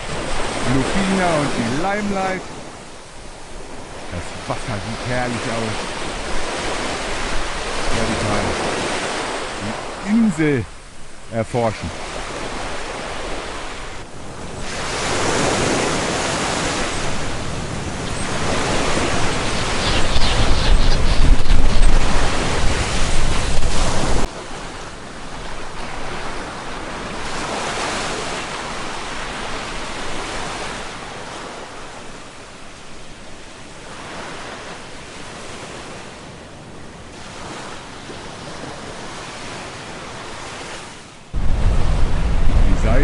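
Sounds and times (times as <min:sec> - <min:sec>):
wind buffeting microphone: 0:00.0 - 0:32.3, 0:41.3 - 0:43.0
surf rushing: 0:00.0 - 0:43.0.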